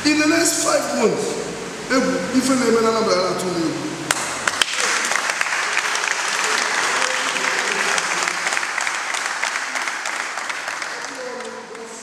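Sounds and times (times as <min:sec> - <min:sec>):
people applauding: 0:04.1 - 0:12.0.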